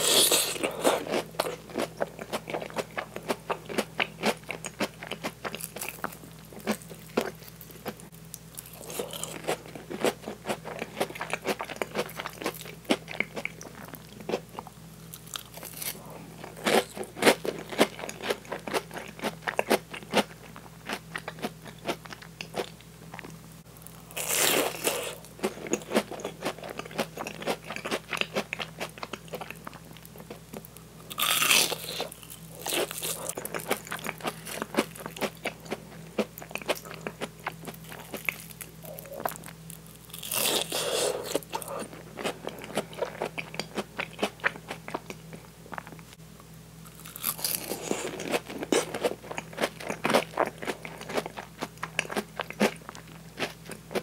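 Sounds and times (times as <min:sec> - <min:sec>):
crunchy bites: 0:31.1 - 0:45.0, 0:46.8 - 0:54.0.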